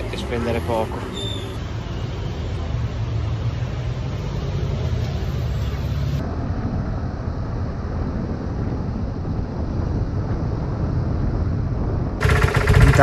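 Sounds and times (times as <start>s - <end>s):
wind and road noise: 0.0s - 13.0s
scooter engine running: 12.2s - 13.0s.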